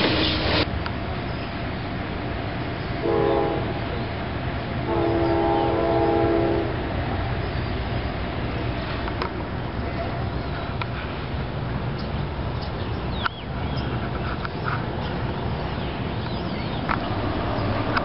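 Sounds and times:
locomotive air horn: 3.0 - 3.9, 4.8 - 6.9.

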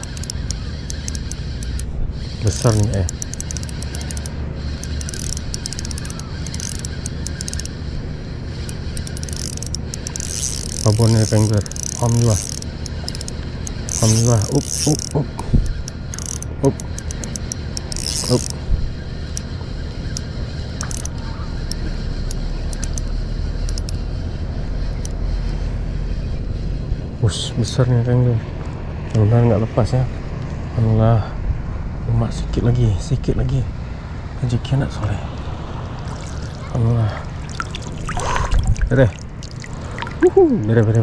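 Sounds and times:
fishing reel clicking: 0.0 - 24.1, 36.1 - 36.8
wind rumble on microphone: 18.6 - 19.1, 37.3 - 41.0.

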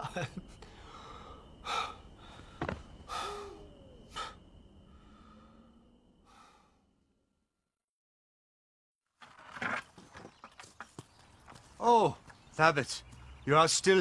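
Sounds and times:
man sighing and breathing heavily: 0.5 - 6.8.

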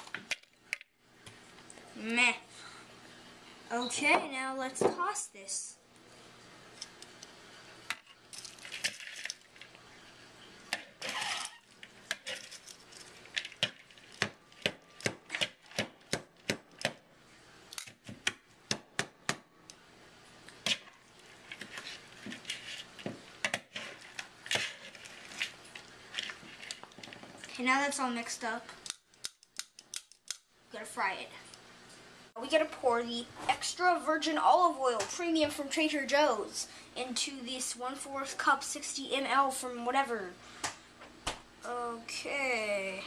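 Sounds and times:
pasta rustling scrapes: 20.6 - 23.1, 23.7 - 27.1.

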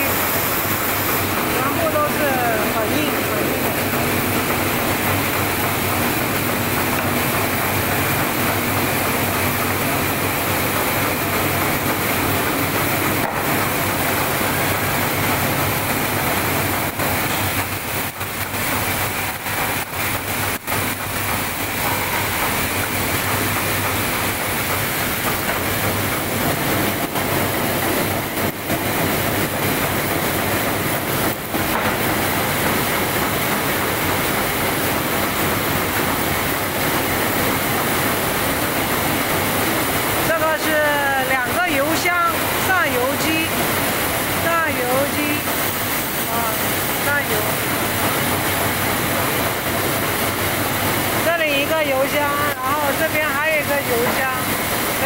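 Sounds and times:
dense metallic machine clatter: 0.4 - 38.8.

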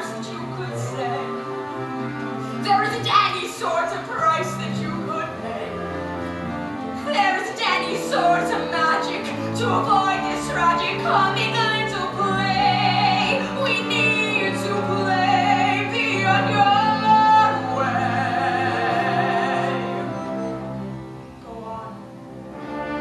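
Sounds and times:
woman singing: 0.0 - 1.4, 2.6 - 5.8, 7.0 - 20.0
instrumental accompaniment: 0.0 - 23.0.

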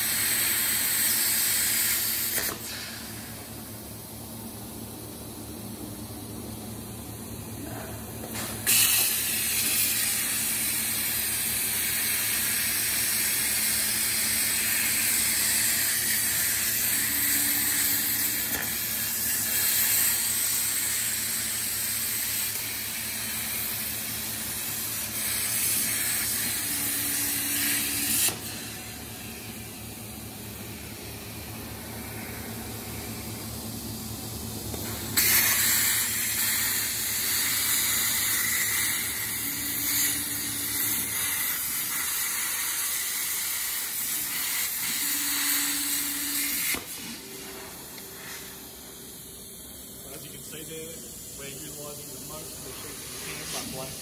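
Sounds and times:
plasma cutter hissing: 0.0 - 3.5, 8.2 - 29.5, 34.7 - 54.0
machine hum: 9.4 - 43.1.

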